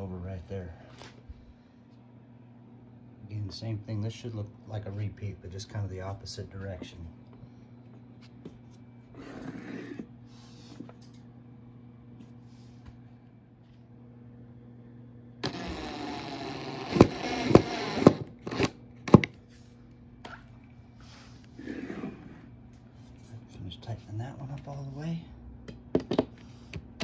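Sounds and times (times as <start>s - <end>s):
power drill driving screw: 15.4s - 19.2s
sharp clicks of drill clutch: 15.4s - 19.3s.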